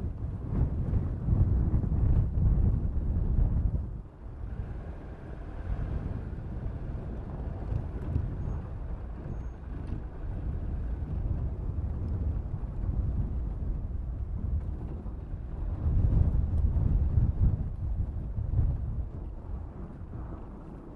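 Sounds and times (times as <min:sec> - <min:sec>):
car driving rumble: 0:00.0 - 0:20.9.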